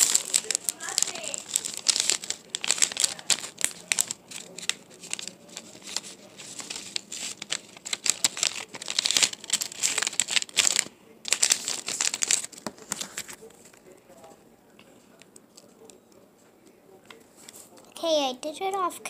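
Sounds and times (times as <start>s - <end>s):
paper being folded and creased: 0.0s - 13.8s.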